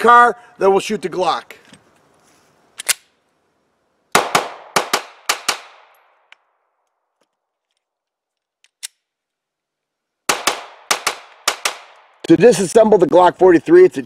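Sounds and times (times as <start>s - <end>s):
pistol shots echoing: 4.1s - 6.1s, 10.3s - 12.3s.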